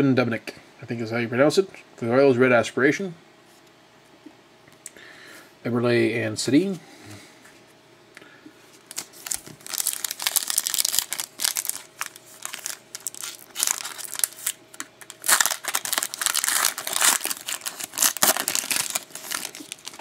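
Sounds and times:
foil wrapper crinkling and tearing: 8.9 - 20.0.

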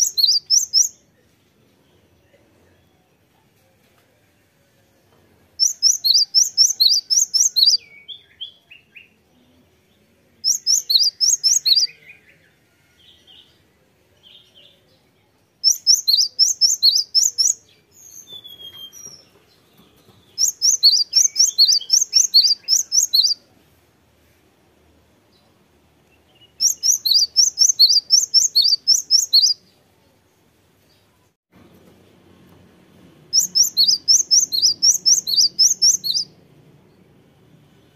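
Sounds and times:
bird singing high sweeping notes: 33.4 - 36.4.

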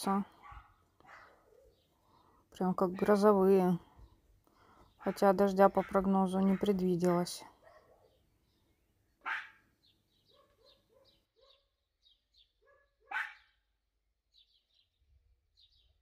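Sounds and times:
dog barking: 0.4 - 1.8, 5.0 - 6.8, 7.6 - 8.2, 9.2 - 9.6, 10.3 - 11.7, 12.6 - 13.6.

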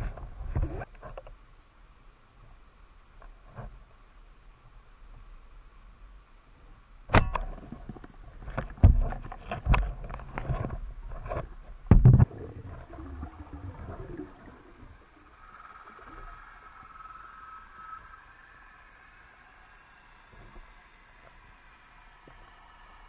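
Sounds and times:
faint steady hum: 0.0 - 23.0
underwater knocks and clunks: 7.1 - 14.6.

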